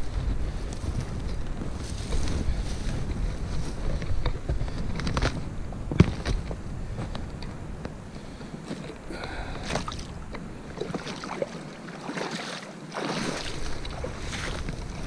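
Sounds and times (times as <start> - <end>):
water splashing: 9.5 - 15.0.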